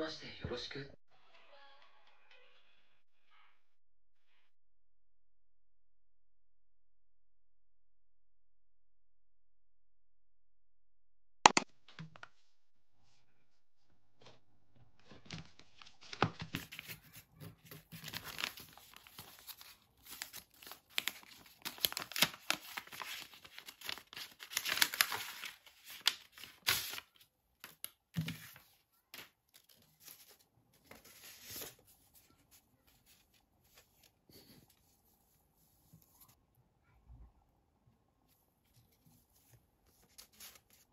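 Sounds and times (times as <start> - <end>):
paper envelope crinkling: 15.0 - 31.9, 39.9 - 40.9.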